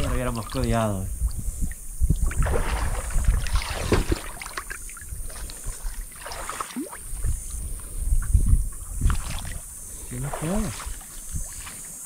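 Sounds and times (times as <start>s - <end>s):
river water splashing: 0.0s - 0.8s, 1.6s - 7.9s, 8.7s - 12.0s.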